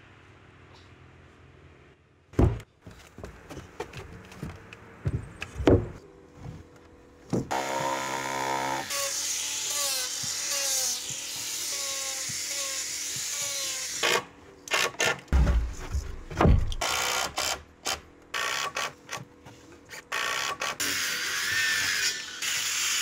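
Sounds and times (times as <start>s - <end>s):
knocks on wood: 2.4s - 2.7s, 5.0s - 6.0s, 15.4s - 16.8s
angle grinder grinding wood: 7.5s - 14.2s.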